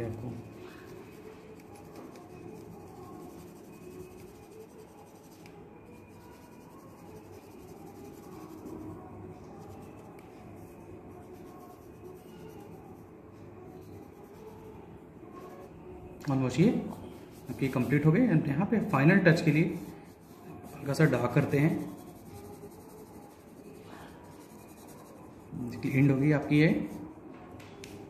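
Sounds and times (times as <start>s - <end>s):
pencil rubbing on paper: 0.1s - 9.0s, 19.4s - 26.2s.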